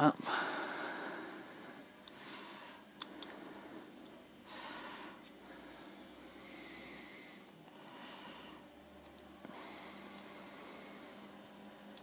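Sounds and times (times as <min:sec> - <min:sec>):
quiet breathing: 0:00.2 - 0:12.0
small sharp clicks: 0:03.0 - 0:03.4.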